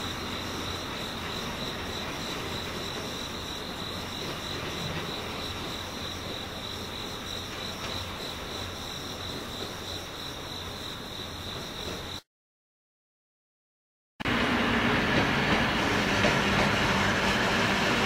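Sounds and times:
crickets chirping: 0.0 - 12.3.

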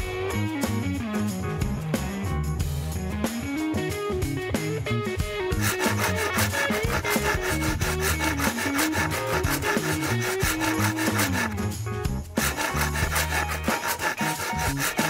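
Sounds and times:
background music with bass: 0.0 - 15.0
hand saw cutting wood: 5.5 - 11.8, 12.4 - 15.0.

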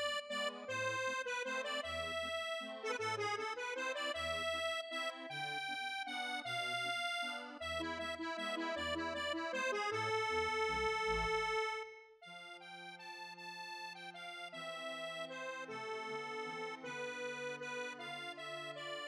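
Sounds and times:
light instrumental music: 0.0 - 12.6.

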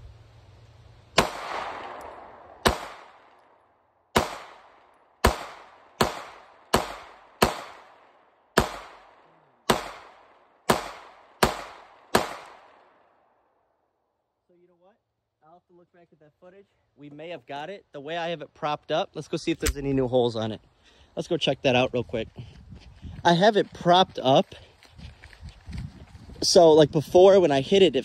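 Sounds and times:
pistol shots with echo: 1.2 - 13.0.

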